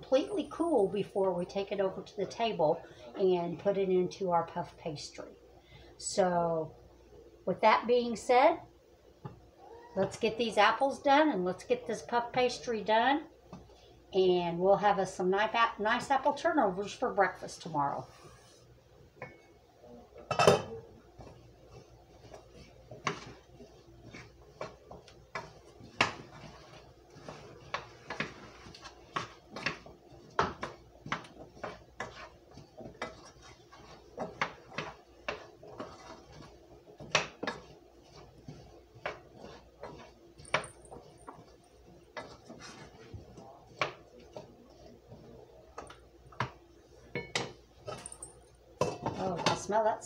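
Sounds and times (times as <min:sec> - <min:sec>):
wooden spoon scraping pan: 0:21.1 - 0:45.5.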